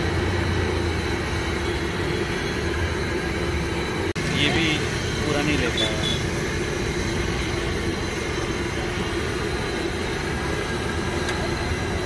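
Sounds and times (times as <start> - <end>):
fritters deep-frying in oil: 0.0 - 12.0.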